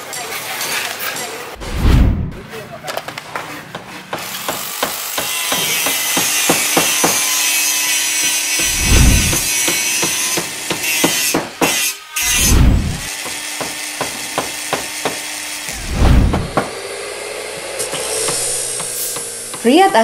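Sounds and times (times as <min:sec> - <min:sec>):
deep boom: 0:01.6 - 0:02.4, 0:08.6 - 0:09.5, 0:12.4 - 0:13.1, 0:15.7 - 0:16.6
sawing: 0:03.7 - 0:20.0
power tool noise: 0:04.2 - 0:20.0.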